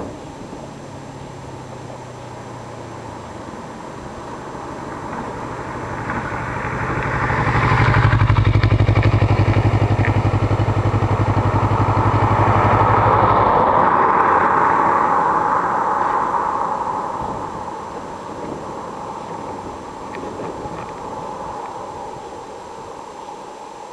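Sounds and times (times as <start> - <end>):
motorcycle engine passing by: 4.1 - 21.5.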